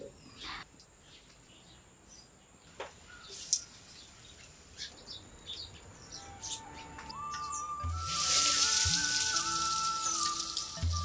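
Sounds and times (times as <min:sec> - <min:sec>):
birds chirping faintly: 0:00.0 - 0:11.0.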